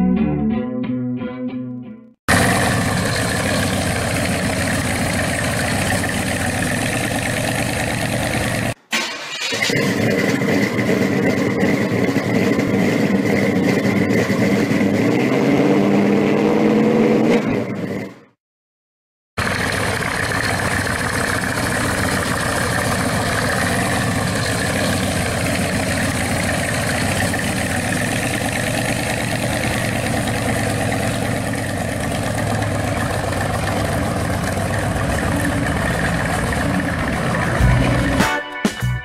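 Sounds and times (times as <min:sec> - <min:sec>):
car engine running near idle: 0:02.3 - 0:08.8, 0:09.7 - 0:15.0, 0:19.4 - 0:38.3.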